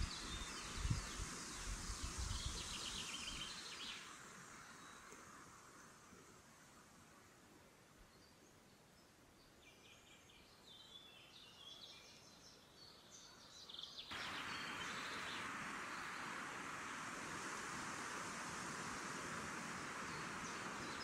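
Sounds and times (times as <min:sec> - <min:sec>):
songbirds chirping and trilling: 0:08.0 - 0:21.0
steady rushing noise: 0:14.1 - 0:21.0.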